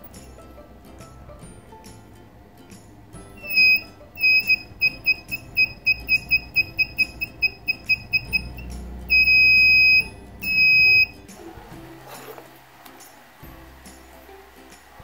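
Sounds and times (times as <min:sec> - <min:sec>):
high-pitched buzzer beeping: 0:03.4 - 0:11.2.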